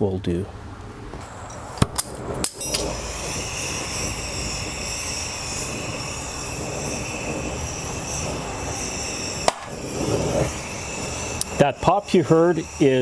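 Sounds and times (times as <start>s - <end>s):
torch flame hissing: 0.8s - 13.0s
sharp metal pop: 1.8s - 2.9s, 9.4s - 9.8s.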